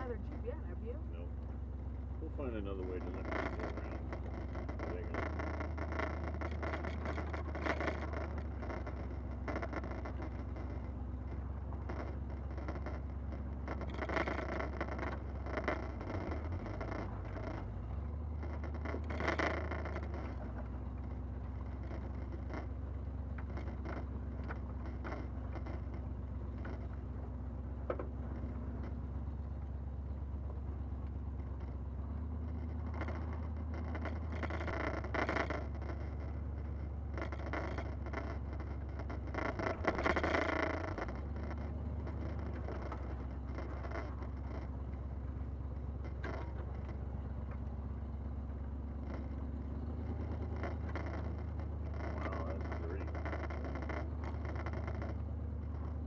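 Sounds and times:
engine droning at low speed: 0:00.0 - 0:56.0
knocks and rattles on rocks: 0:02.9 - 0:27.1, 0:32.4 - 0:45.0, 0:48.9 - 0:56.0.

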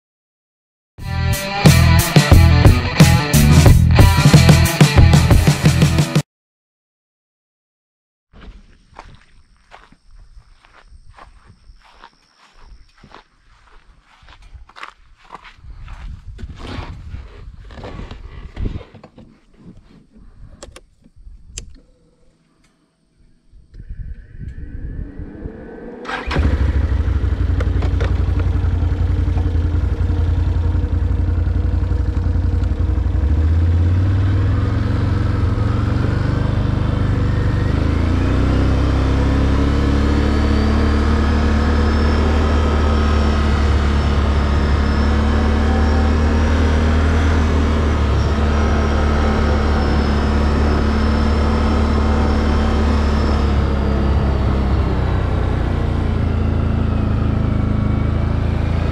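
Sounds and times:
atv engine cranking and running: 0:26.0 - 0:58.9.

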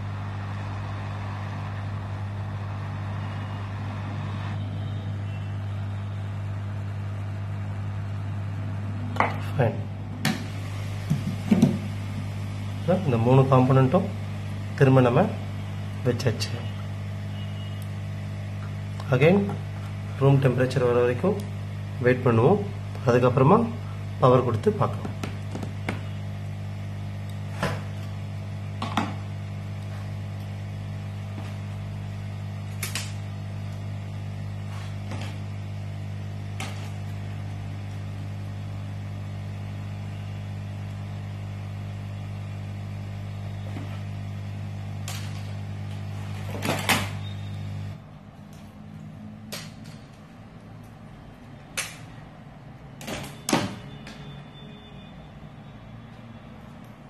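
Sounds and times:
electric blower humming: 0:07.4 - 0:20.4.

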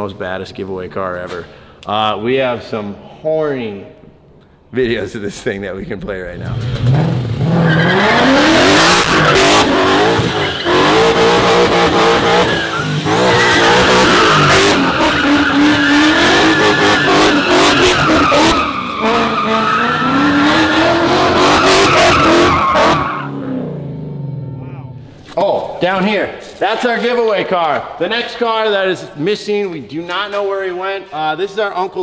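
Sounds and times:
car engine revving: 0:06.3 - 0:24.8
tyres squealing: 0:07.4 - 0:23.3.

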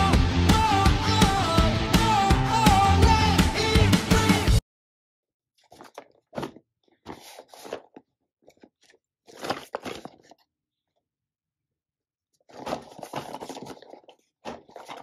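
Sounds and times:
music: 0:00.0 - 0:04.6
packaging crinkling and scraping: 0:05.6 - 0:11.0, 0:12.4 - 0:15.0.

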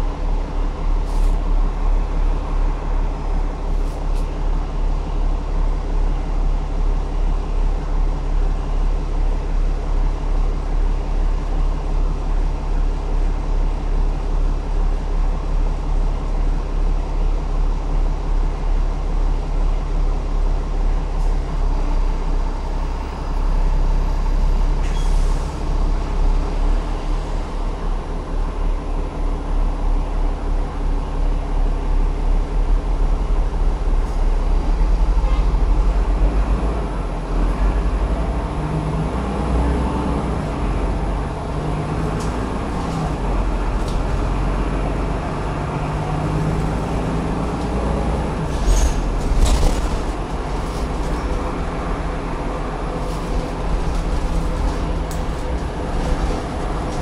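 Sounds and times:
bus engine drone: 0:00.0 - 0:57.0.

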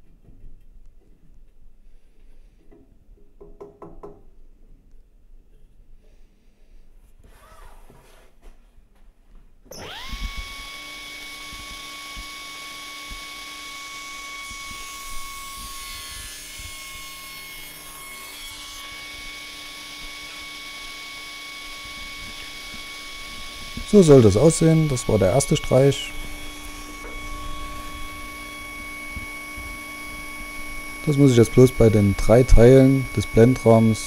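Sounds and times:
saw cutting wood: 0:09.7 - 0:34.0
table saw whining and humming: 0:09.7 - 0:34.0.

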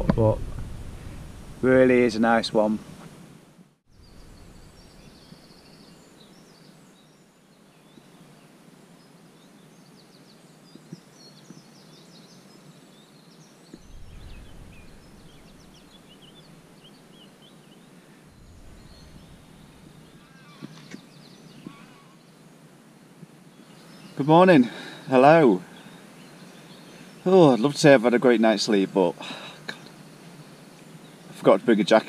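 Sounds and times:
low rumble: 0:00.0 - 0:02.1, 0:03.9 - 0:05.3, 0:13.8 - 0:17.2, 0:18.3 - 0:20.2
steady hiss: 0:00.0 - 0:32.0
songbirds chirping and trilling: 0:03.9 - 0:32.0.

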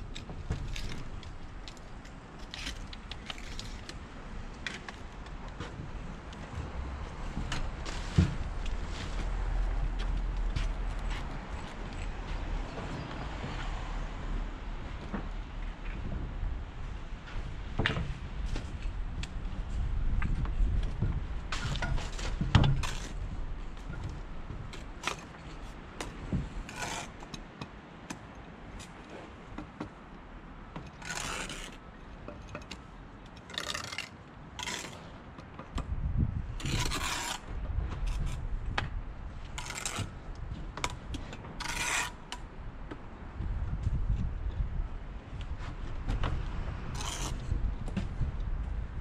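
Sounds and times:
masonry tools scraping on stone: 0:26.6 - 0:27.4, 0:30.9 - 0:31.8, 0:33.4 - 0:35.1, 0:36.6 - 0:37.5, 0:39.5 - 0:40.2, 0:40.8 - 0:42.4, 0:47.0 - 0:47.5.

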